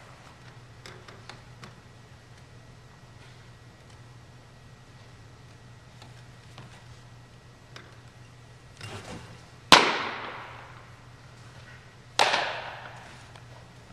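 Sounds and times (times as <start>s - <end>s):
ball smacking into mitt with echo: 9.7s - 10.7s, 12.2s - 13.0s.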